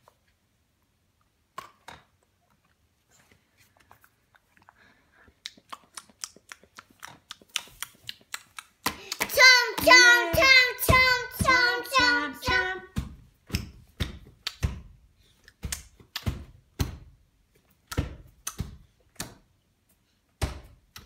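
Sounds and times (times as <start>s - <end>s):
hands slapping plastic tray: 7.6s - 17.2s
child sing-song voice: 8.9s - 13.2s.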